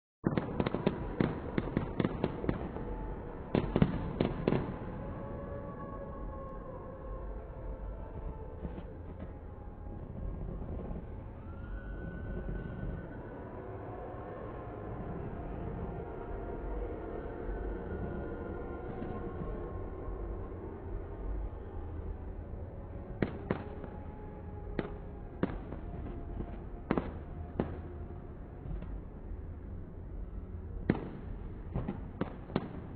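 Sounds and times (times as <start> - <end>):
fireworks bangs: 0.2 - 4.9, 24.7 - 28.0, 30.8 - 32.9
continuous low rumble: 0.2 - 32.9.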